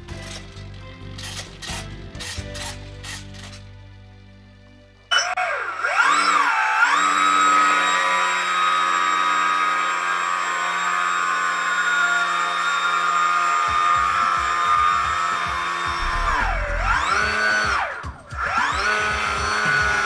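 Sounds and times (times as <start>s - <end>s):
electric motor propeller whine: 5.1s - 20.0s
low buffeting: 15.9s - 18.2s.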